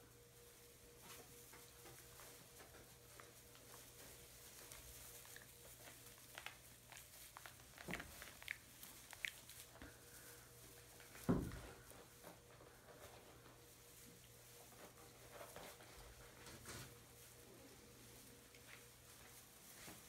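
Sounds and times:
puppies' paws on straw: 0:00.0 - 0:20.0
straw crackling: 0:03.1 - 0:11.2.

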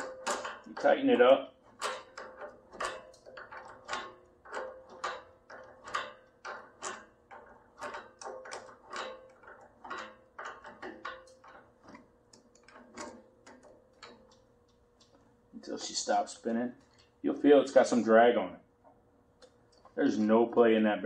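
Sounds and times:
metallic clicking of axle nut: 0:00.0 - 0:15.3.

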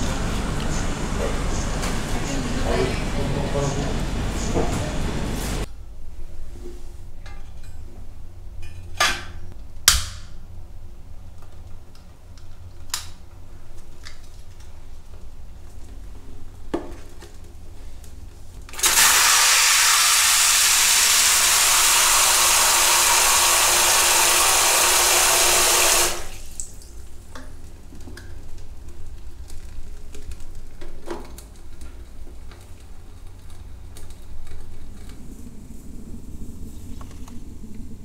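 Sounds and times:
water spraying from shower head: 0:18.8 - 0:26.6.

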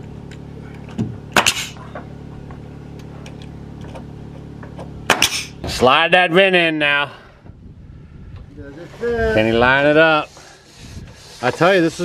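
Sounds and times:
steady low hum: 0:00.0 - 0:12.0
pneumatic nail gun firing: 0:01.3 - 0:01.8, 0:05.1 - 0:05.7.

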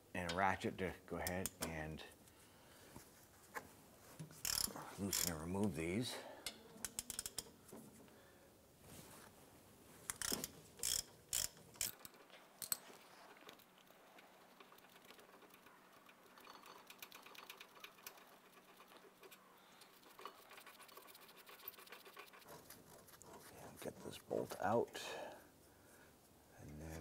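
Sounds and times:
ratchet clicking: 0:04.4 - 0:05.4, 0:06.8 - 0:07.5, 0:10.1 - 0:12.8.

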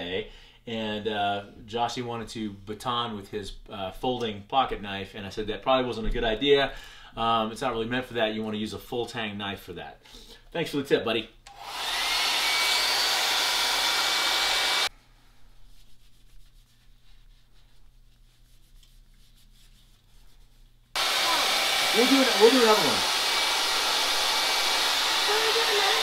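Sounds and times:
hair dryer blowing: 0:11.5 - 0:14.9, 0:21.0 - 0:26.0.

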